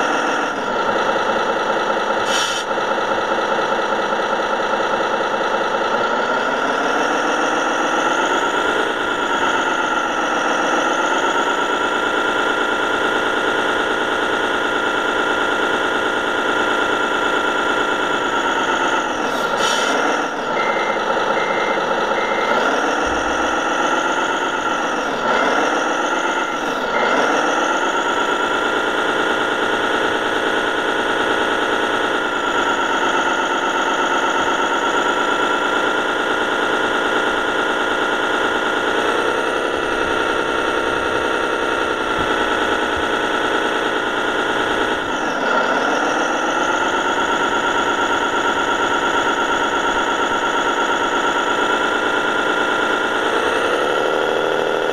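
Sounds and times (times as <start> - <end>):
simulated diesel truck engine: 0.0 - 54.9
short beeps: 20.5 - 23.5.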